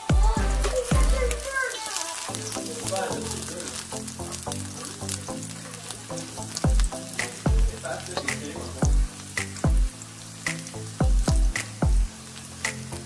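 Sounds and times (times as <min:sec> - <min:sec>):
background music with booming beats: 0:00.0 - 0:01.4, 0:06.6 - 0:09.9, 0:10.5 - 0:13.0
garlic sizzling in oil: 0:00.0 - 0:13.0.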